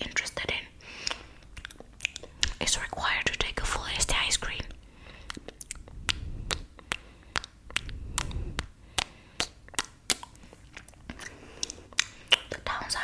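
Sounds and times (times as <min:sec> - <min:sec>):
wet mouth clicks and smacks: 0:01.0 - 0:02.7, 0:04.4 - 0:13.0.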